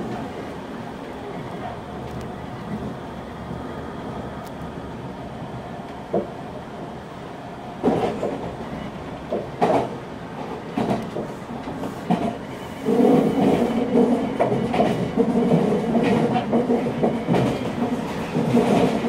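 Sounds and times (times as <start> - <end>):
train wheels rumbling on rail: 0.0 - 19.0
clacks over rail joints: 6.1 - 6.4, 7.8 - 19.0.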